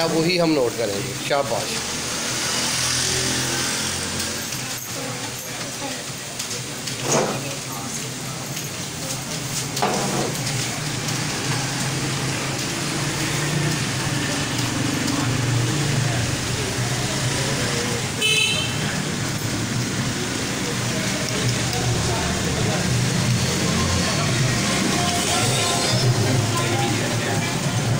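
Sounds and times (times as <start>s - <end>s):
car horn toot: 18.2s - 18.8s.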